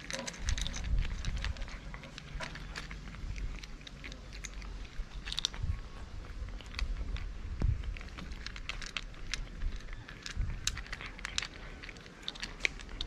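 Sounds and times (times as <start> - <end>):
cats crunching dry kibble: 0.0 - 13.0.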